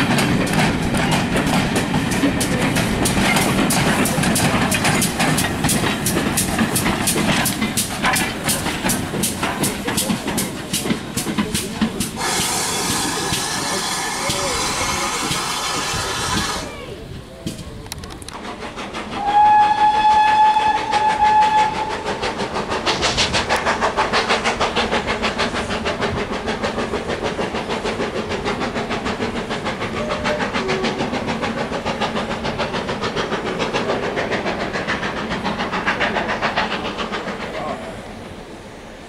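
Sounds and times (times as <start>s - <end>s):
exhaust beat and wheels: 0.0s - 16.7s
steam locomotive whistle: 12.2s - 16.7s, 19.2s - 22.2s, 30.0s - 30.9s.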